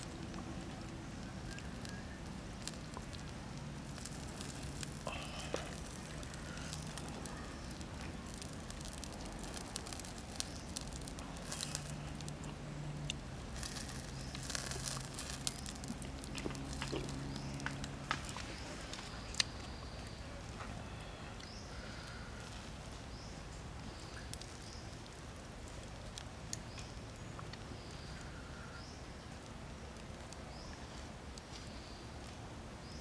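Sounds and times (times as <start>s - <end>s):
sharp fire pops: 0.0s - 19.6s
embers crackling: 0.0s - 33.0s.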